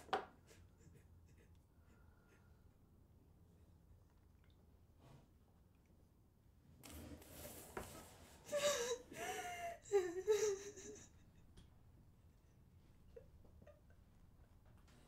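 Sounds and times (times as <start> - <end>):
woman sobbing: 8.4 - 11.4.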